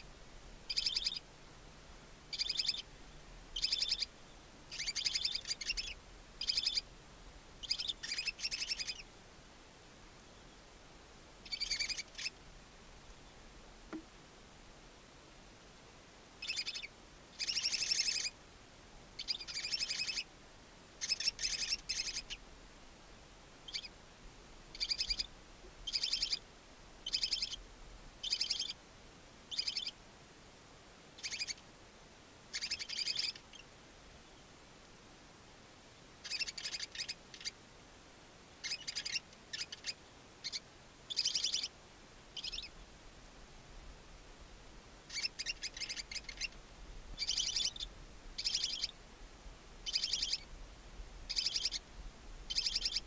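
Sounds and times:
owl chicks calling: 0.7 - 1.3, 2.3 - 2.9, 3.6 - 4.1, 4.7 - 6.9, 7.6 - 9.1, 11.4 - 12.4, 16.4 - 18.4, 19.2 - 20.3, 21.0 - 22.4, 23.7 - 23.9, 24.7 - 25.3, 25.9 - 26.4, 27.0 - 27.6, 28.2 - 28.8, 29.5 - 30.0, 31.2 - 31.6, 32.5 - 33.7, 36.2 - 37.6, 38.6 - 41.7, 42.4 - 42.8, 45.1 - 46.6, 47.2 - 49.0, 49.8 - 50.5, 51.3 - 51.8, 52.5 - 53.0.

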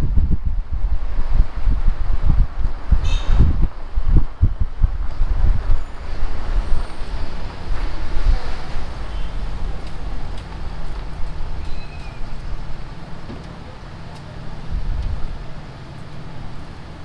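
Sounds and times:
road noise rumble: 0.0 - 17.0
diesel engine running: 3.9 - 17.0.

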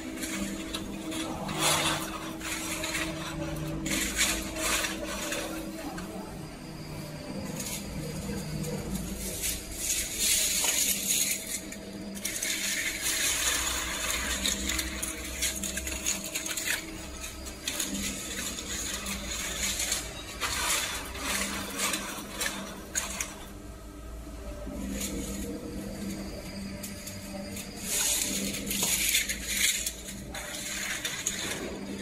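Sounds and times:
steady machine hum: 0.0 - 32.0
metal parts clinking and rattling: 7.5 - 23.6, 24.8 - 32.0.

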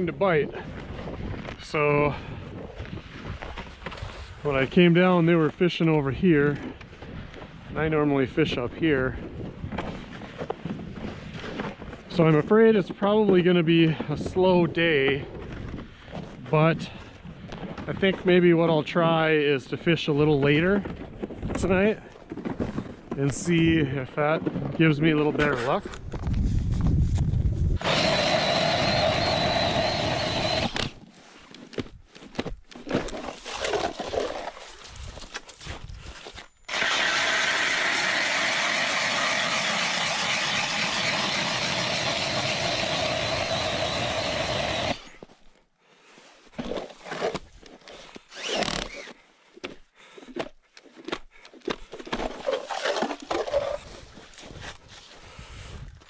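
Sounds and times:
cordless drill motor whine: 27.8 - 31.0, 36.6 - 45.3, 48.2 - 49.2
scrapes and knocks on ice: 31.7 - 36.3, 50.4 - 55.1.

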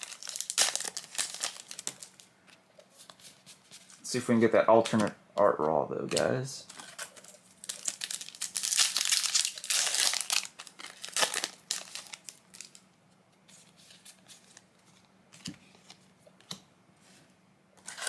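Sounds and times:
foil wrapper crinkling and tearing: 0.0 - 2.3, 6.9 - 12.8.

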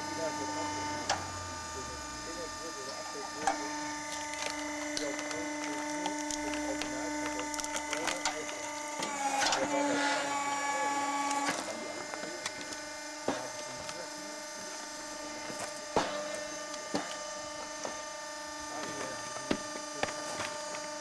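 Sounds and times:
log splitter motor humming: 0.0 - 21.0
wood cracking and splintering: 3.2 - 9.7.

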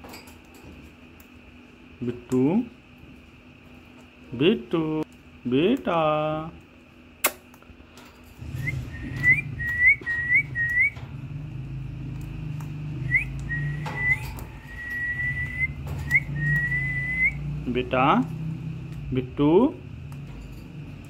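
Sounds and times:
sharp click: 7.2 - 7.6
parakeet whistling: 8.5 - 11.0, 13.0 - 17.5.

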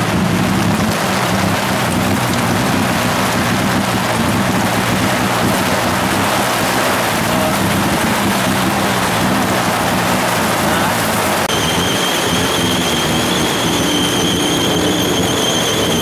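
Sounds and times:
rain falling: 0.0 - 16.0
tuk-tuk engine running: 0.0 - 16.0.

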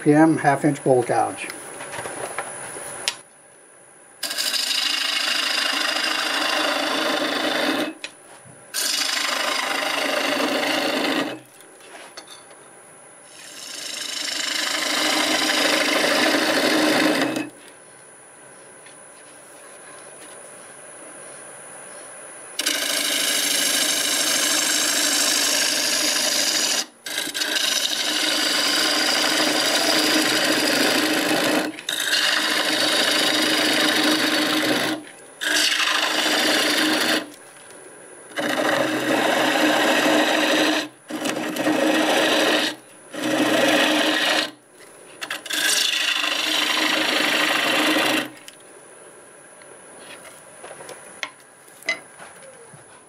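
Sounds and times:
lathe running: 4.2 - 8.0, 8.8 - 11.4, 13.3 - 17.5, 22.6 - 37.3, 38.4 - 44.6, 45.3 - 48.4
gouge scraping spinning wood: 4.2 - 8.1, 8.7 - 12.1, 13.3 - 17.7, 22.6 - 37.4, 38.3 - 44.6, 45.2 - 48.5.

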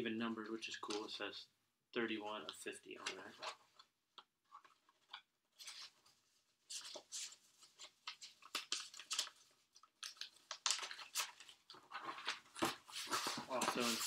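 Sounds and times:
paper and packaging crinkling: 4.6 - 14.0.

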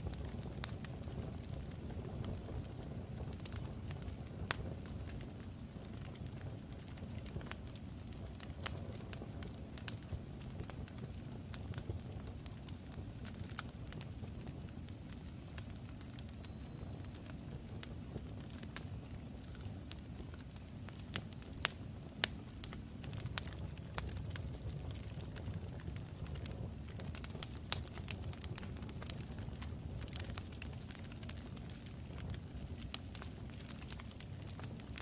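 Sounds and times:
wood fire crackling: 0.0 - 35.0
faint high whistle: 11.3 - 19.4.

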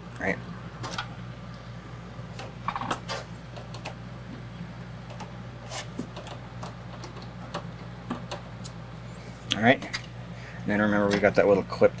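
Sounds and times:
steady low hum: 0.0 - 12.0
clicks and taps inside computer case: 6.0 - 8.4.

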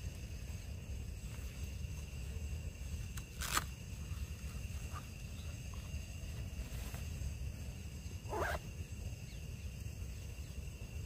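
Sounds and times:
insects droning: 0.0 - 11.0.

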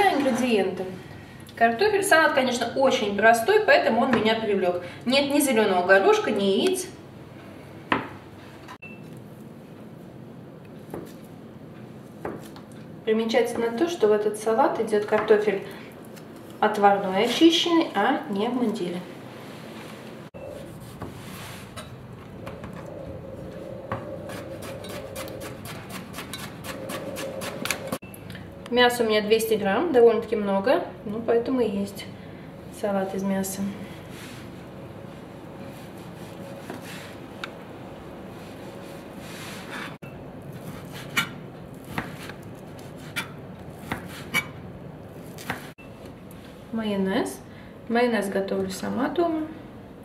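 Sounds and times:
knife chopping on cutting board: 24.3 - 27.9, 40.6 - 44.5, 45.2 - 45.7.

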